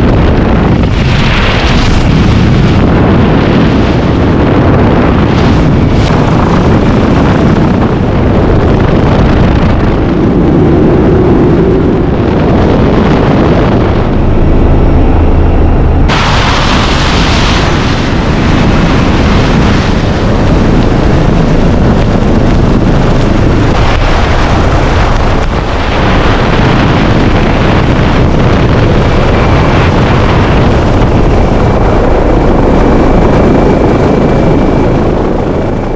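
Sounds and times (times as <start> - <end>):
helicopter rotor and engine: 0.0 - 35.9
wind buffeting microphone: 0.0 - 35.9
faint high whine: 13.2 - 26.9.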